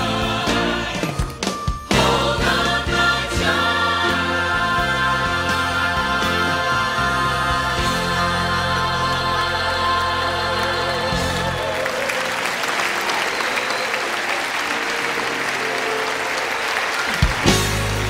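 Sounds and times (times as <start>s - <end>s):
gospel choir and band: 0.0s - 18.0s
audience applause: 8.5s - 18.0s.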